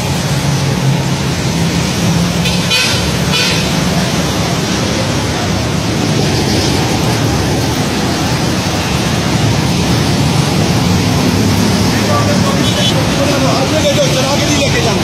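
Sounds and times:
loud rushing noise: 0:00.0 - 0:15.0
traffic engine drone: 0:00.0 - 0:15.0
vehicle horn toots: 0:02.4 - 0:03.8.

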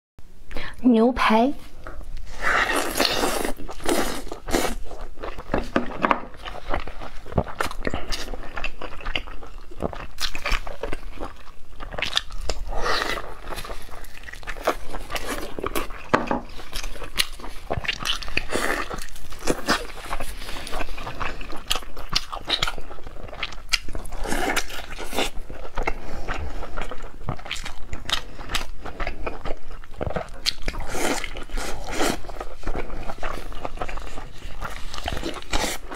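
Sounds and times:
person chewing meat: 0:01.8 - 0:35.9.

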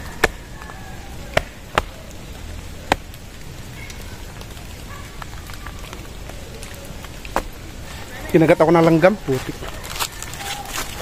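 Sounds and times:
steady rain: 0:00.0 - 0:11.0.

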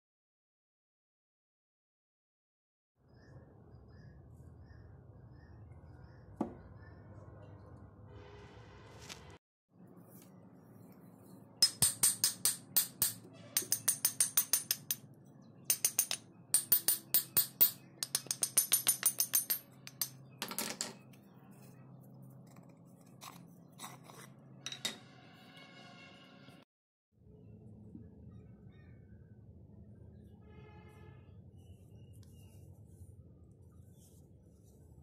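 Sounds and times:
axe head rattling on handle: 0:15.7 - 0:20.6.

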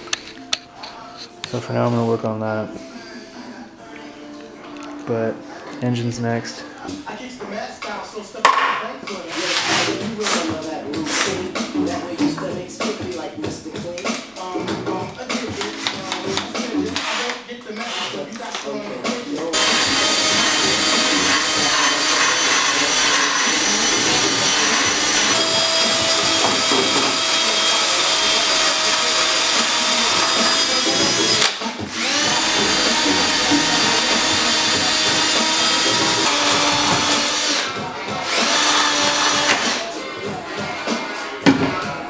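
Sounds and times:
cordless drill whining: 0:19.5 - 0:39.9.

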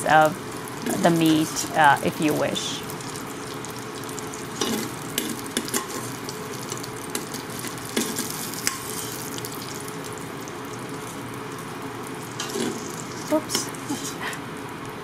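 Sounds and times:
sausage sizzling in hot fat: 0:00.0 - 0:15.0
metal spoon scraping a pot: 0:12.4 - 0:14.2.

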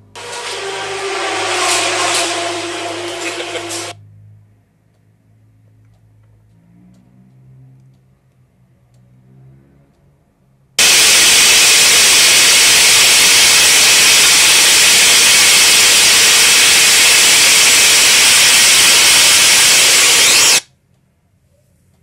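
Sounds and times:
loud rushing hiss: 0:00.0 - 0:04.0, 0:10.8 - 0:20.6.

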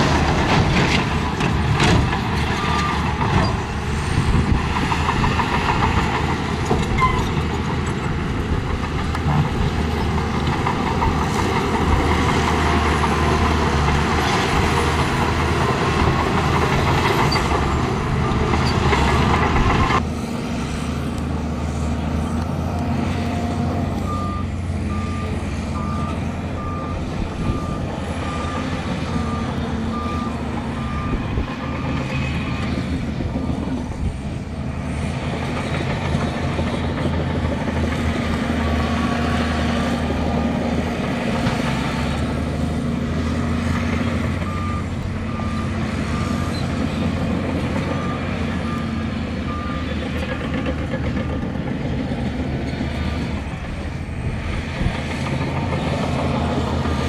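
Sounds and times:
diesel machinery engines running: 0:00.0 - 0:57.0
reversing alarm beeping: 0:24.0 - 0:32.5, 0:44.4 - 0:50.0.

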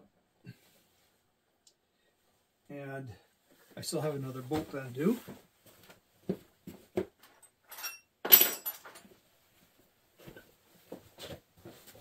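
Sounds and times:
metallic jangle of small tools: 0:07.3 - 0:09.0.

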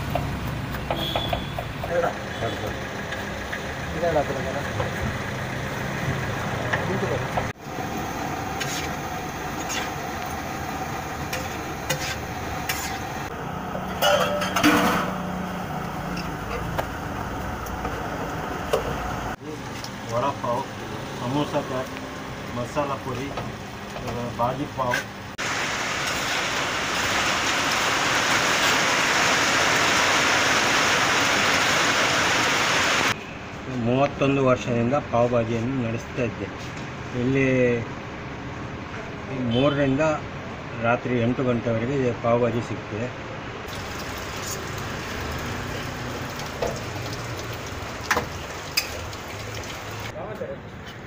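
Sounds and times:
food sizzling: 0:07.0 - 0:33.2, 0:43.7 - 0:50.2
metal spatula scraping griddle: 0:08.6 - 0:09.0, 0:09.6 - 0:10.0, 0:11.3 - 0:13.2.

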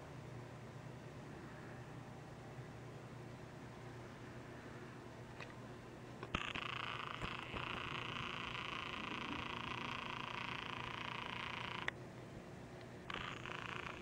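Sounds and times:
low steady hum: 0:00.0 - 0:14.0
camera zoom motor whirring: 0:06.2 - 0:12.0, 0:13.0 - 0:14.0.

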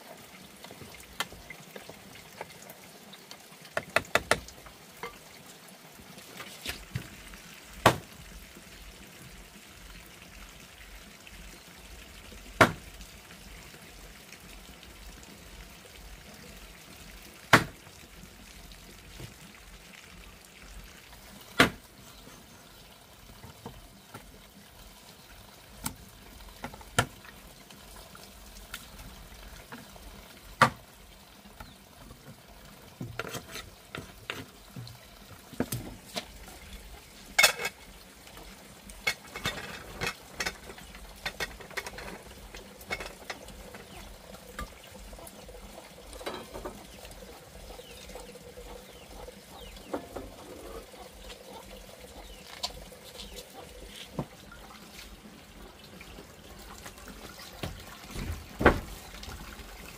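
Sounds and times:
water trickling: 0:00.0 - 0:59.9.

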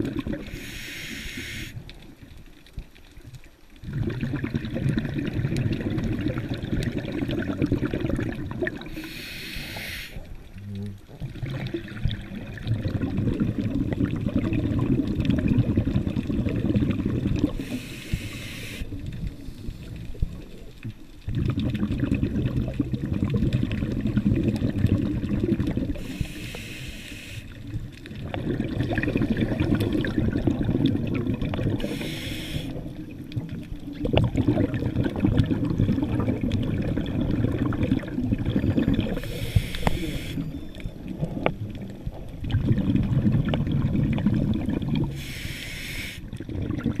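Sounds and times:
exhaled bubbles rushing: 0:00.0 - 0:00.7, 0:03.8 - 0:17.8, 0:18.8 - 0:26.4, 0:27.5 - 0:45.4, 0:46.2 - 0:47.0
regulator hissing inhale: 0:00.5 - 0:01.8, 0:08.9 - 0:10.3, 0:17.6 - 0:20.0, 0:26.0 - 0:27.6, 0:31.8 - 0:32.8, 0:39.2 - 0:40.4, 0:45.1 - 0:46.3.

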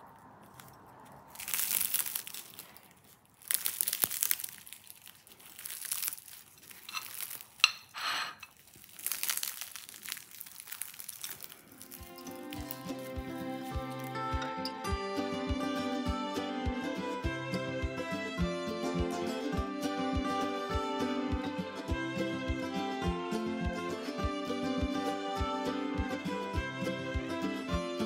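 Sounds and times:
flaky pastry crust crackling: 0:00.0 - 0:14.4.

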